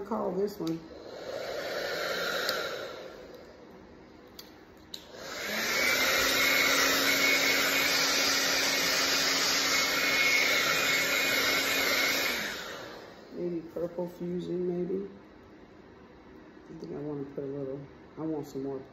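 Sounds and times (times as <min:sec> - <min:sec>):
hair dryer blowing: 0:00.0 - 0:03.7, 0:04.9 - 0:14.0.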